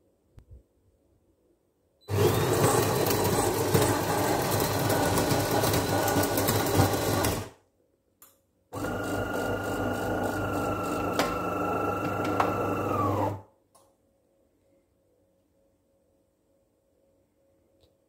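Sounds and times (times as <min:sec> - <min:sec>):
coffee grinder grinding beans: 0:02.1 - 0:07.5, 0:08.8 - 0:13.4.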